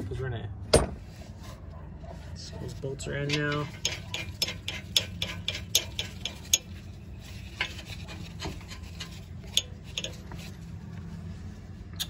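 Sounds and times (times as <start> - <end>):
hand tools clicking on metal: 3.3 - 6.7.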